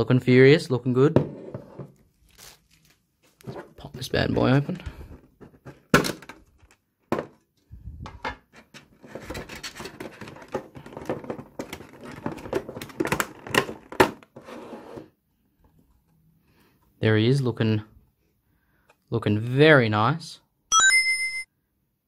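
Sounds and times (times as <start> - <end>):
packaging being opened by hand: 2.0 - 3.5.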